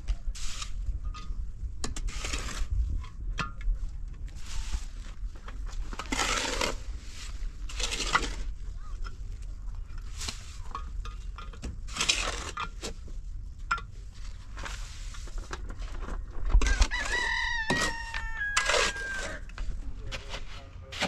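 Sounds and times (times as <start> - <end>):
rooster crowing: 16.6 - 19.5.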